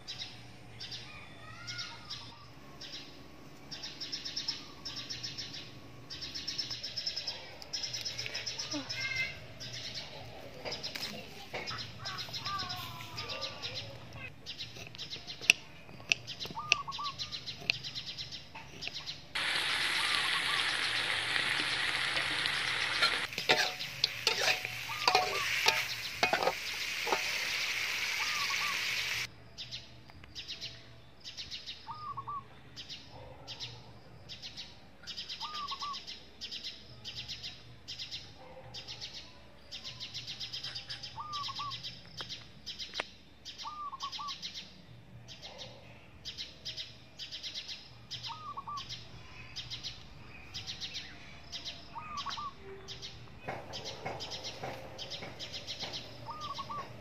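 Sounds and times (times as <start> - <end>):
loud steady hiss: 19.4 - 29.3
fast bird chirps: 24.8 - 29.3.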